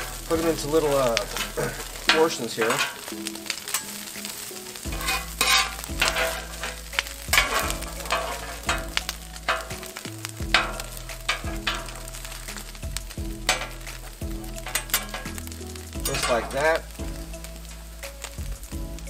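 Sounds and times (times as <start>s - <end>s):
metal spatulas scraping a griddle: 0.0s - 12.8s, 13.4s - 16.9s
meat sizzling on a griddle: 0.0s - 19.0s.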